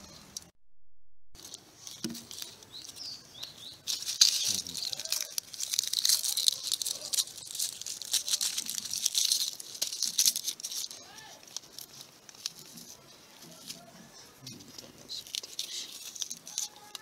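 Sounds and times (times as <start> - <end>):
onion skins crackling and tearing: 1.4 - 17.0
bird chirps: 2.6 - 5.0.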